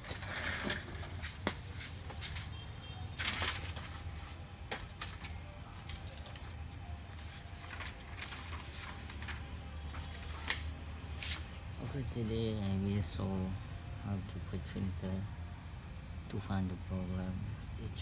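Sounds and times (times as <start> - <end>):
paper rustling: 3.2 - 11.5.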